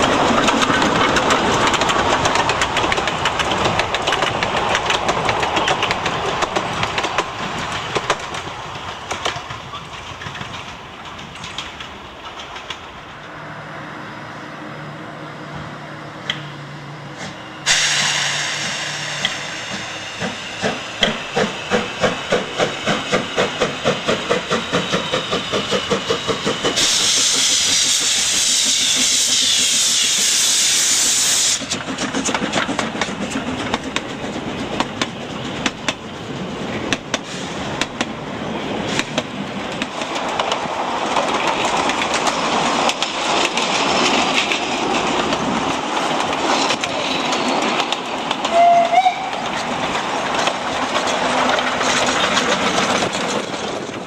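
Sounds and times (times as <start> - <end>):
carriages clattering on rails: 0.0 - 13.4, 16.2 - 54.0
steam locomotive exhaust beats: 15.5 - 54.0
loud hiss of steam: 17.1 - 33.6, 37.0 - 41.1.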